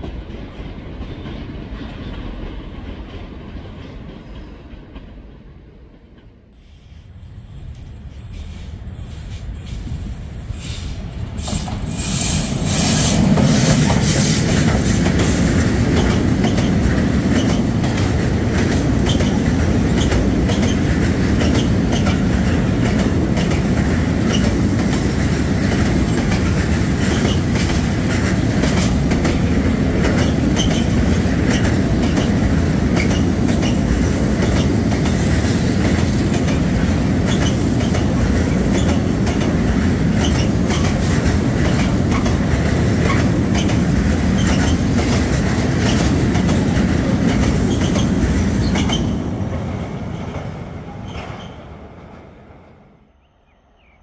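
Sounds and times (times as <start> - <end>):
train wheels rumbling on rail: 0.0 - 53.1
wheels clicking over rail joints: 11.3 - 49.2.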